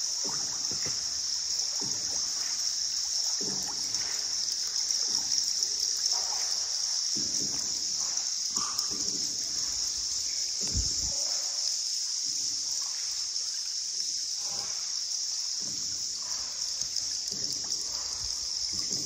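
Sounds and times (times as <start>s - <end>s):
paddles splashing water: 0.0s - 11.4s
steady high-pitched hiss: 0.0s - 19.0s.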